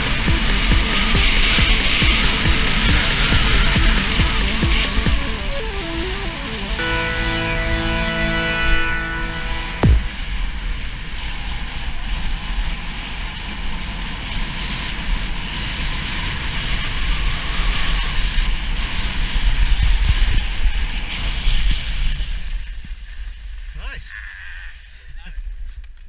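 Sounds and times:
short sharp thump: 0:09.8 - 0:10.2.

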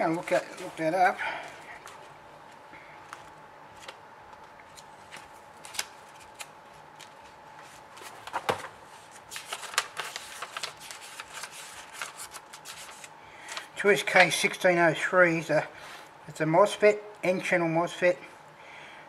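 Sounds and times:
book pages flipping: 0:01.5 - 0:13.7.

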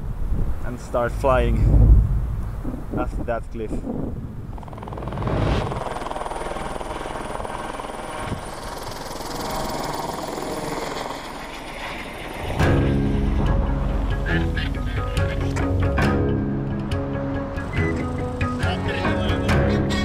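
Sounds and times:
wind noise: 0:00.0 - 0:06.0
helicopter rotor chop: 0:04.2 - 0:14.2.

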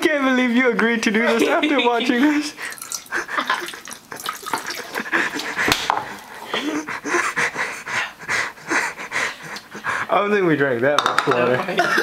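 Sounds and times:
person panting: 0:02.4 - 0:10.2.

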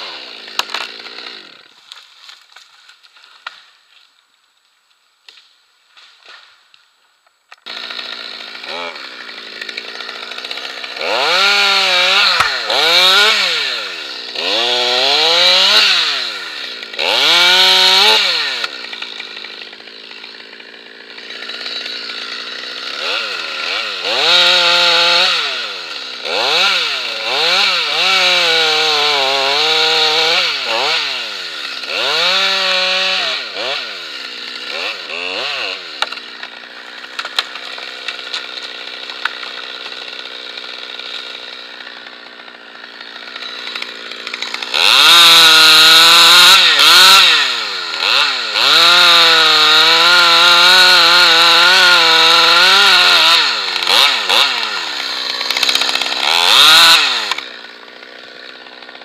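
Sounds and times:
chainsaw revving: 0:00.0 - 0:01.7, 0:07.6 - 0:59.0.

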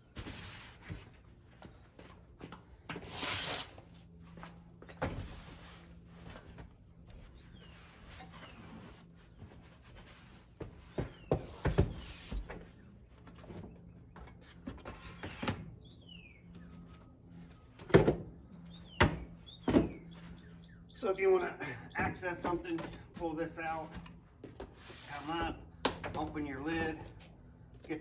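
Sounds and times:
bird chirping: 0:15.7 - 0:17.1, 0:18.4 - 0:21.2
plastic bins clunking and knocking: 0:18.9 - 0:20.3.

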